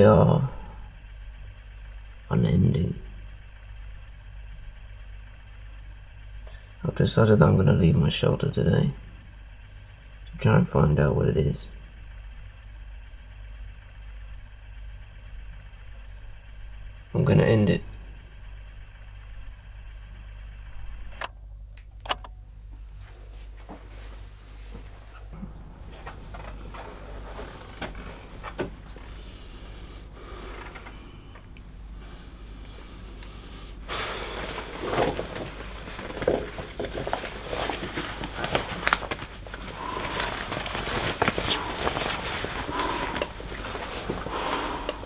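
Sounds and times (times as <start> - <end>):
low room hum: 0.0 - 45.0
nylon jacket rustling: 33.9 - 45.0
rubber gas mask squeaking: 33.9 - 45.0.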